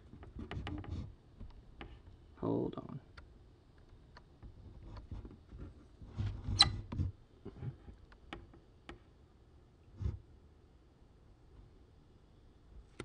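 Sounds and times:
fingernail scratching paper label: 0.1 - 1.1, 6.2 - 7.1.

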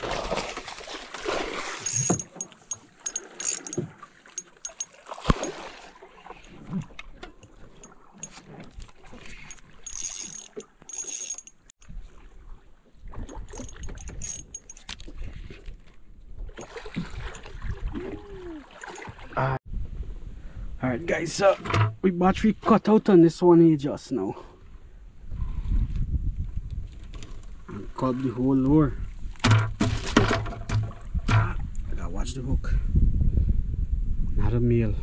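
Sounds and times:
water splashing: 0.0 - 14.0, 14.8 - 19.6
knocks and clicks in a boat: 1.8 - 5.6, 6.3 - 11.5, 13.1 - 17.6, 21.6 - 22.8, 29.3 - 31.8.

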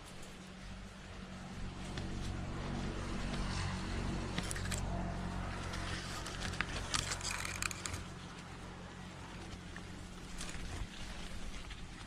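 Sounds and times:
steady low hum: 0.0 - 12.0
clothing scraping tree bark: 1.5 - 12.0
sharp scratches and clicks: 3.3 - 8.5.

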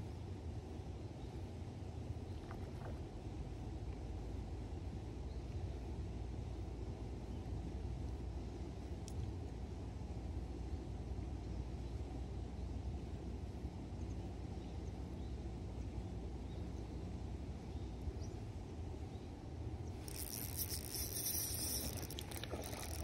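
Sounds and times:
low steady rumble: 0.0 - 23.0
fish splashing at surface: 20.0 - 23.0
fishing reel cranking: 20.0 - 23.0.

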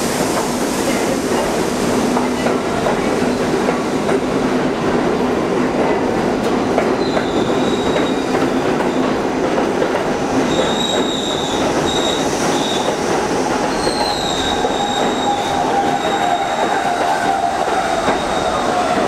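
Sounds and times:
subway train wheels rumbling: 0.0 - 19.0
train wheel squeal: 7.0 - 8.3, 10.5 - 19.0.

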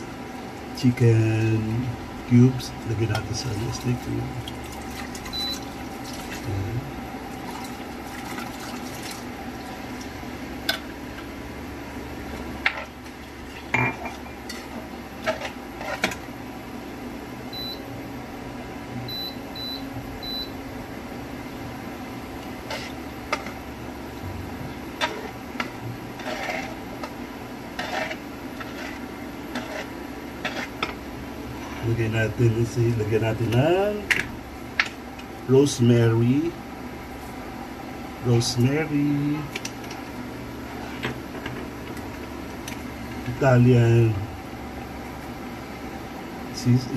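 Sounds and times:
steady low hum: 0.0 - 46.9
thick sauce being stirred: 14.4 - 16.2, 24.8 - 32.0
spatula scraping frying pan: 14.5 - 16.2, 22.6 - 23.6, 25.0 - 32.0.

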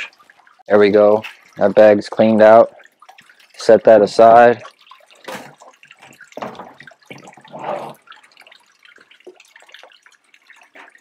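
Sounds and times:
faint crackling drips: 0.0 - 11.0
water draining into bucket: 0.0 - 11.0
water splashing: 0.0 - 11.0.

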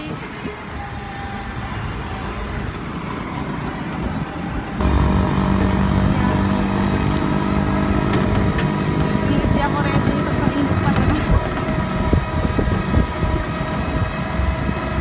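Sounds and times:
road and wind rumble: 0.0 - 15.0
motorized tricycle running: 4.8 - 15.0.

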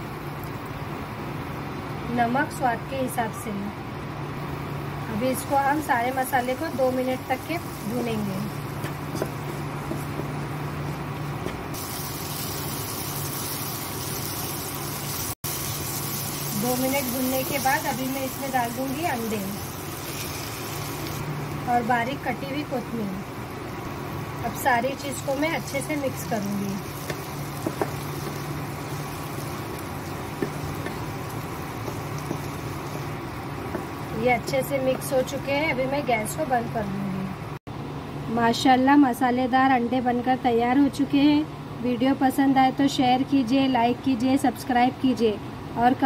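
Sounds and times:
steady low hum: 0.0 - 12.7, 15.5 - 46.0
food sizzling in hot oil: 5.4 - 35.9
spatula tapping and scraping pan: 8.8 - 10.4, 27.0 - 28.4, 29.7 - 31.2
wooden spatula scraping: 8.8 - 11.6.

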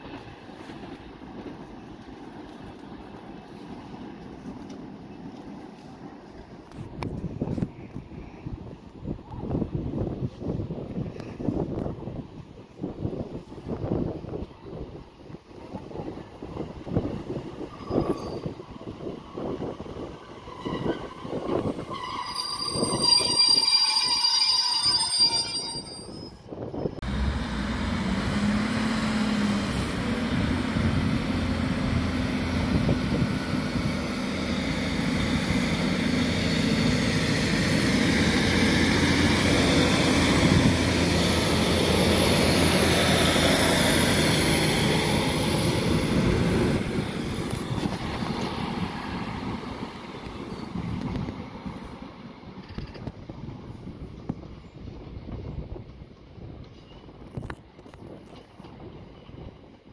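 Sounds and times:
rumble of train cars passing: 0.0 - 59.9
train diesel engines running: 0.0 - 59.9
high metallic squeal: 20.6 - 27.0.

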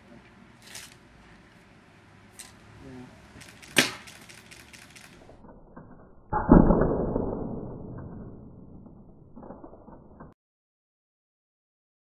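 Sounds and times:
paintball gun firing crack: 3.4 - 5.2.

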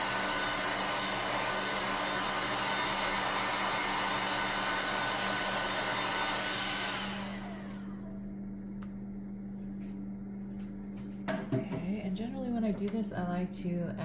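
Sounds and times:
heat gun blowing: 0.0 - 8.1.

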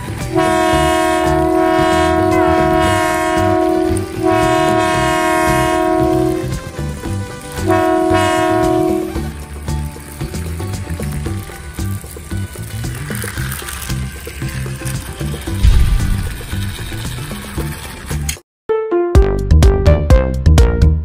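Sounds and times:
toy train electronic horn: 0.0 - 9.4, 13.4 - 18.3.

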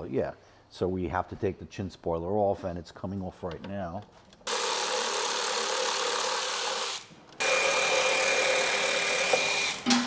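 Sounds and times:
power driver whirring: 4.5 - 10.0.

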